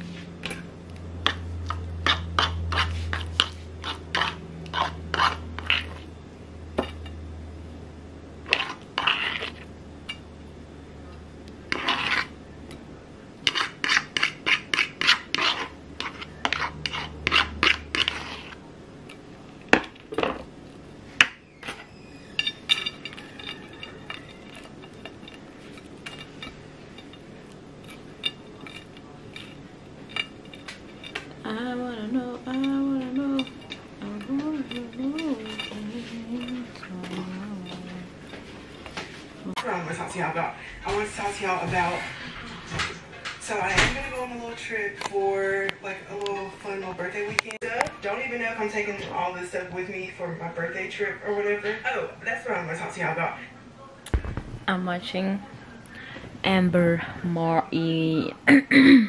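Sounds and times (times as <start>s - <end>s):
cutlery scraping a bowl and plate: 0.1s - 6.1s, 6.8s - 7.2s, 8.4s - 10.3s, 11.7s - 12.8s, 13.4s - 20.5s, 21.2s - 31.4s, 32.5s - 39.6s.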